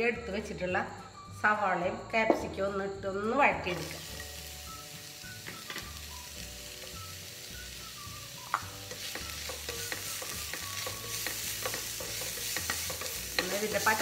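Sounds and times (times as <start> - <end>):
vegetables sizzling in a pan: 3.2 - 14.0
spoon scraping and tapping pan: 8.4 - 14.0.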